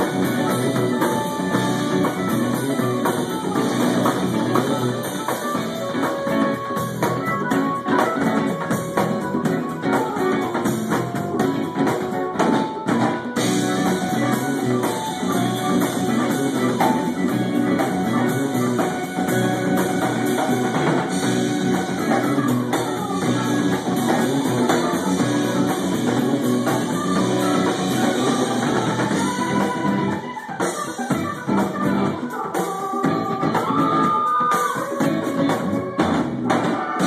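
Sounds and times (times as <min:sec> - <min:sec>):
live rock band playing: 0:00.0 - 0:37.0.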